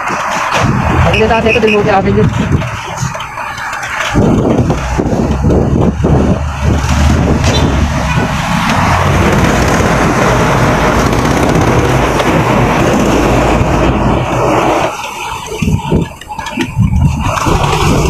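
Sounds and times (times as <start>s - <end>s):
road and traffic noise: 0.0s - 18.0s
wind rushing over microphone: 0.0s - 18.0s.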